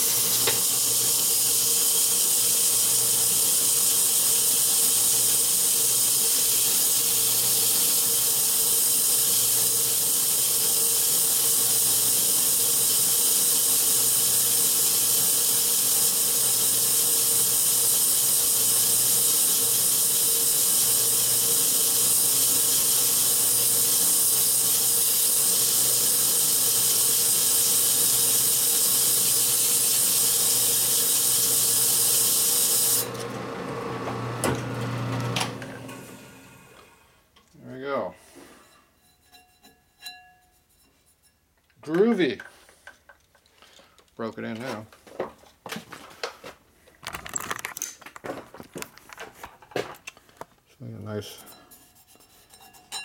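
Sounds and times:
sandpaper hissing on spinning drum: 0.0s - 33.1s
lathe low hum: 32.9s - 37.2s.

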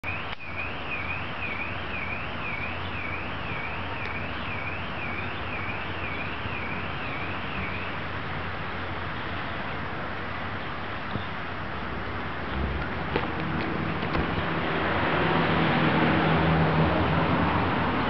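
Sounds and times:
car alarm warbling: 0.0s - 8.0s.

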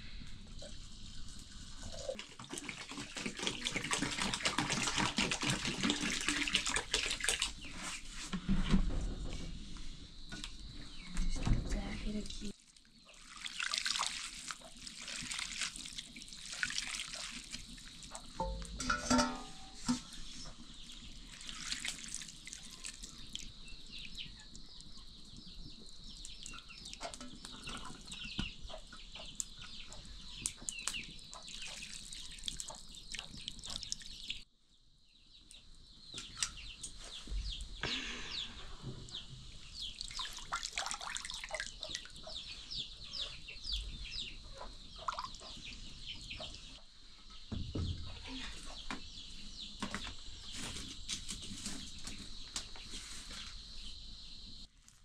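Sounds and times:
birds chirping: 35.2s - 40.5s.

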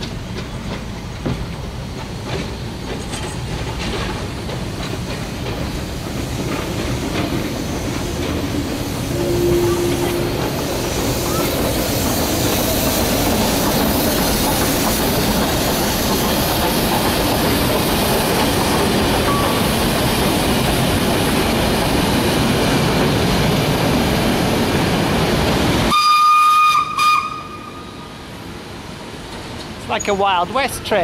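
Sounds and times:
steam train hissing and rumbling: 0.0s - 31.0s
steam whistle: 9.1s - 11.7s, 25.9s - 28.0s.

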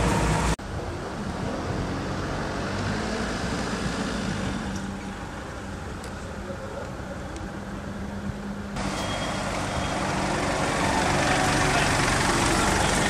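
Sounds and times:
vehicle engine running: 5.6s - 13.0s.

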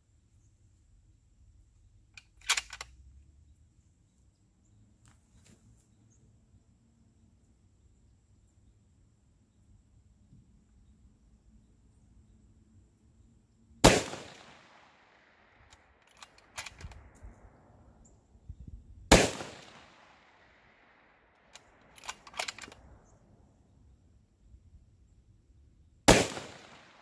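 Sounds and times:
sharp clicks: 2.1s - 3.0s, 15.6s - 17.4s, 21.5s - 23.1s
rifle shots echoing: 13.8s - 17.5s, 19.1s - 22.9s, 26.1s - 27.0s.

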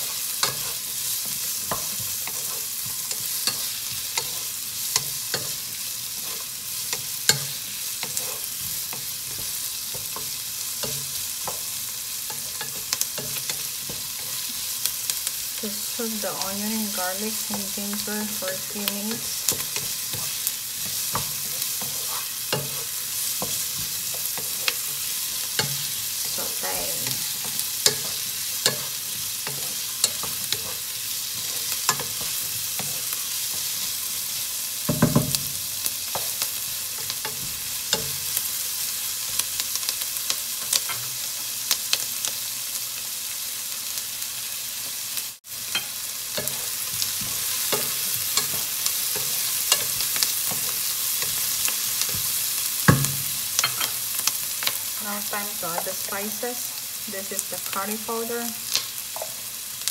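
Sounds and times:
vegetables sizzling in a frying pan: 0.0s - 59.9s
wooden spatula scraping a pan: 16.8s - 33.9s.

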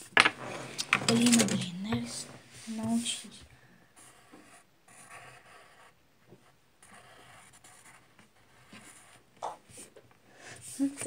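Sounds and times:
pencil scratching on paper: 4.0s - 9.9s.

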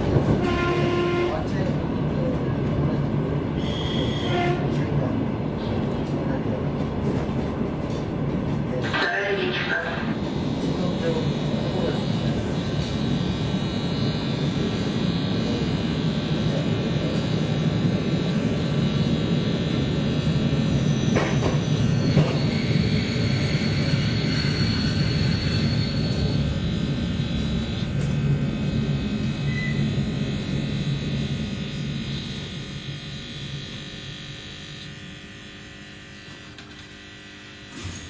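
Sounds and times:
train running rumble: 0.0s - 13.8s.

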